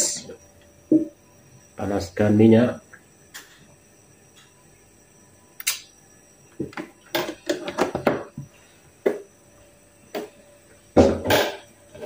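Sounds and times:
kitchen knocks and clatter: 6.6s - 8.3s.

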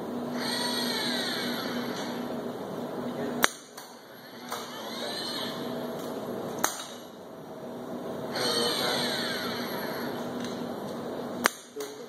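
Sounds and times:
robot arm servos whining: 0.3s - 2.2s, 4.0s - 5.7s, 8.3s - 10.2s.

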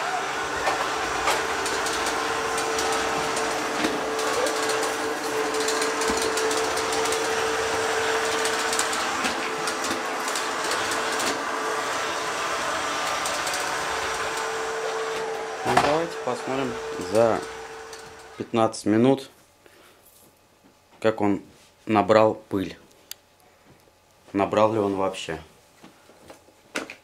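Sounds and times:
robot vacuum motor whine: 0.0s - 18.5s.

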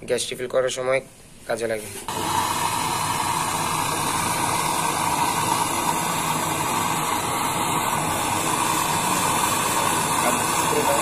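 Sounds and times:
gas torch hissing: 2.0s - 11.0s.

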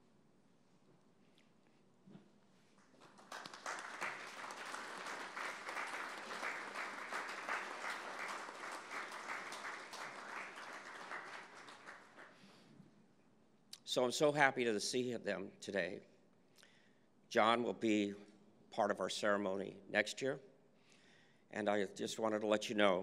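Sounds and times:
audience applauding: 2.8s - 12.4s.

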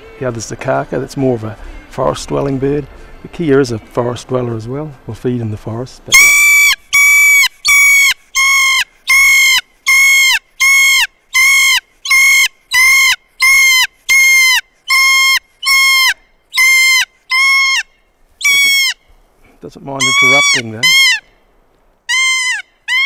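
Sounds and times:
parrot calling: 6.1s - 19.1s, 20.0s - 21.4s, 22.1s - 23.0s.

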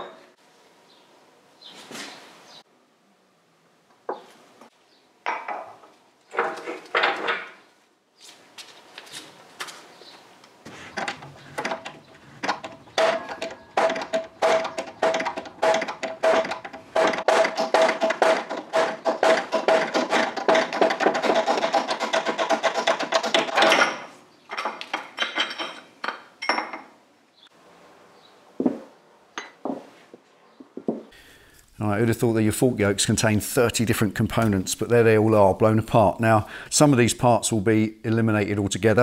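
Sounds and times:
metal knocks: 10.9s - 26.9s
hydraulic press clicking: 11.0s - 21.0s.

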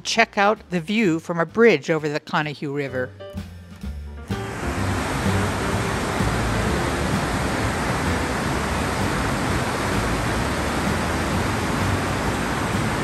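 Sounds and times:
river rushing: 4.3s - 13.0s.

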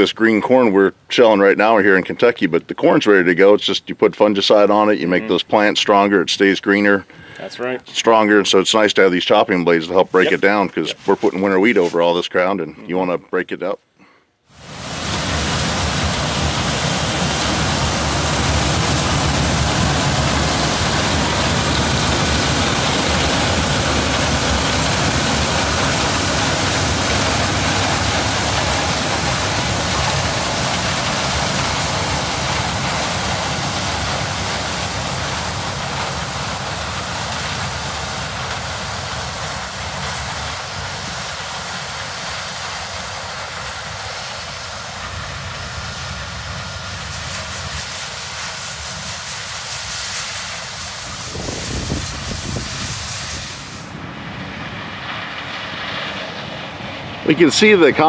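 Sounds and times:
combine harvester running: 14.6s - 58.0s.

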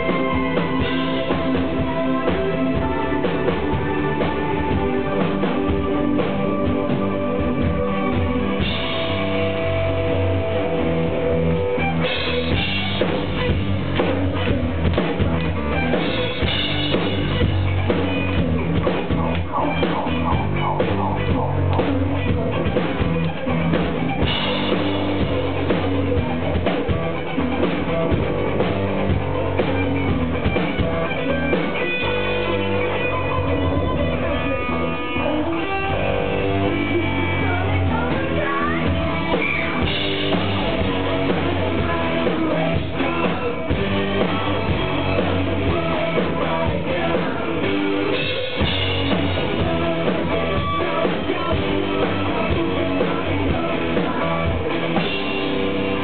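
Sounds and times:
muffled live rock band: 0.0s - 56.0s
person singing: 30.8s - 56.0s.

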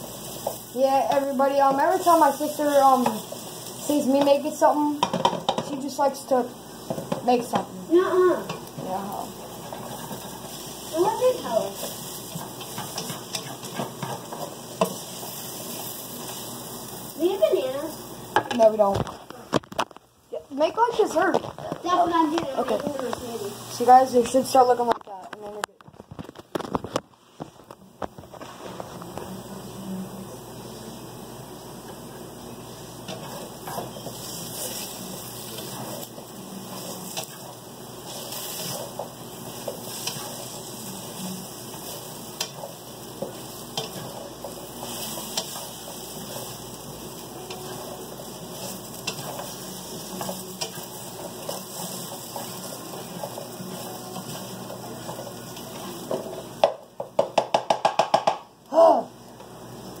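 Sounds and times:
potatoes sizzling in a skillet: 0.0s - 19.5s, 20.2s - 25.5s, 27.9s - 57.6s, 58.5s - 60.0s
spatula scraping a pan: 8.4s - 16.5s, 33.0s - 56.5s.

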